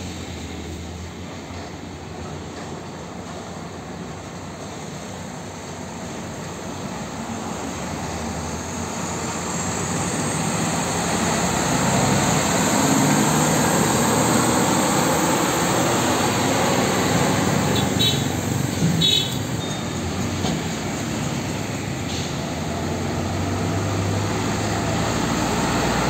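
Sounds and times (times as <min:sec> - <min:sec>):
truck diesel engine passing: 0:00.0 - 0:26.0
high turbo whine: 0:07.3 - 0:19.2.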